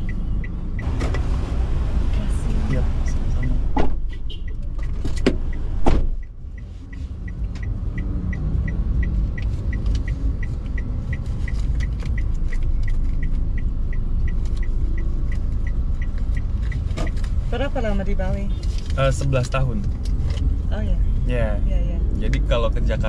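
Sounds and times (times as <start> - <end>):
car indicator ticking: 0.0 - 1.3, 2.6 - 18.7
car rumble: 0.0 - 23.0
thump: 5.2 - 6.1.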